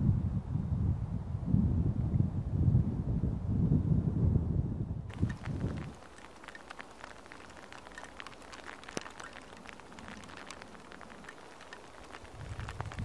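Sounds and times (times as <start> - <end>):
rain falling: 5.1 - 13.0.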